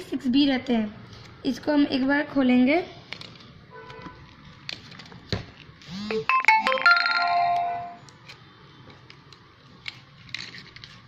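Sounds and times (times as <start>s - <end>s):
electronic ringtone melody: 6.1s - 8.0s.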